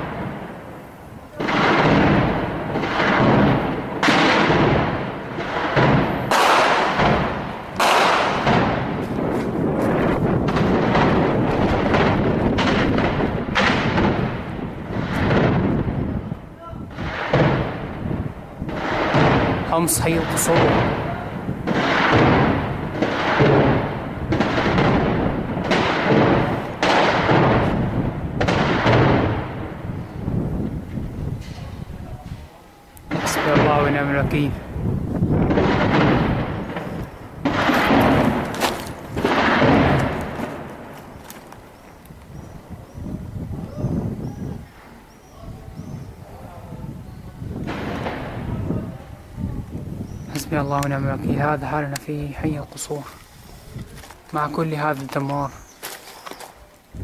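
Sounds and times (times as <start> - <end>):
heavy weapons fire: 0.0 - 0.6, 1.3 - 30.5, 33.1 - 41.2, 47.6 - 48.9.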